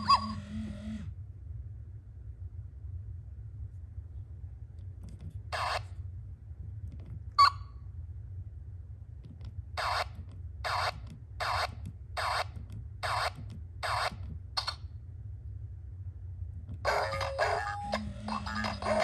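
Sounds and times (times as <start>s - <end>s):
electronic hip-hop tune from speaker: 16.9s - 19.0s
robot toy scratchy bursts: 16.9s - 19.0s.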